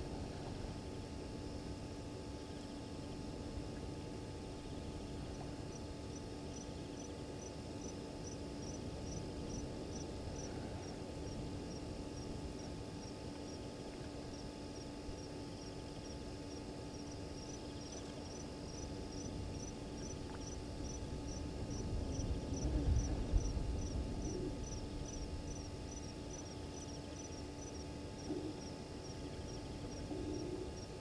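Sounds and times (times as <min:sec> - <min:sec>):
faint steady hum: 0:00.0 - 0:31.0
cricket chirping: 0:01.0 - 0:31.0
low rumble: 0:21.0 - 0:25.5.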